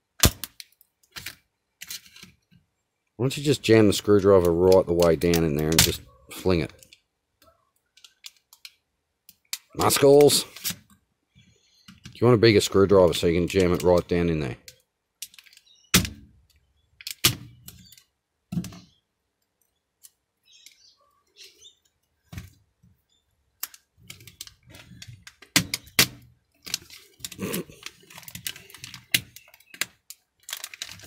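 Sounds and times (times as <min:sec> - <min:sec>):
plastic clicks and cracks: 0:00.2 - 0:02.6, 0:04.4 - 0:06.0, 0:07.7 - 0:11.0, 0:13.3 - 0:20.8, 0:23.6 - 0:31.0.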